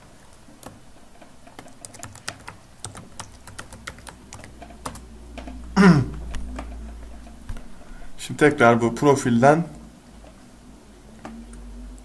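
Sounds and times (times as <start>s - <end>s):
brief vocal sound: 5.8s - 6.3s.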